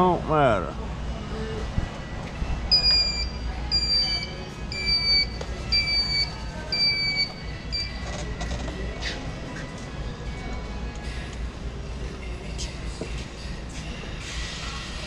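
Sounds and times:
high electronic beeps: 2.7s - 8.1s.

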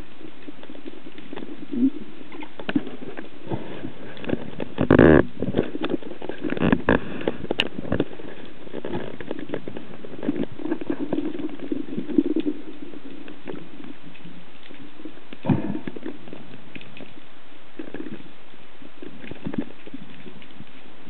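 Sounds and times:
muffled underwater hiss: 0.0s - 21.0s
small clicks and knocks: 4.1s - 17.2s.

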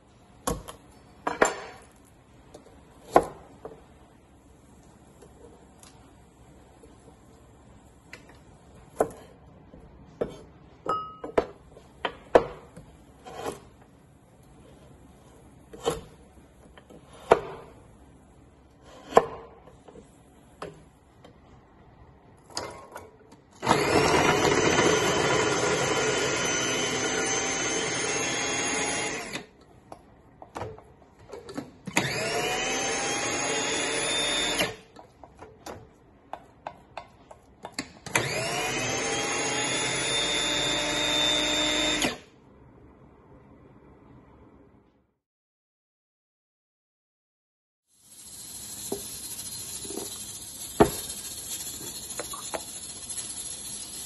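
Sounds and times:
food processor whining: 23.6s - 29.6s, 31.9s - 34.9s, 38.1s - 42.3s.

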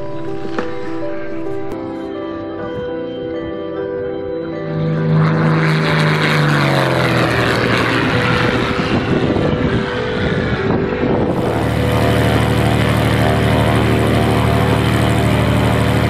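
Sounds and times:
propeller aircraft engine running: 4.5s - 16.0s
propeller plane flying past: 4.6s - 16.0s.

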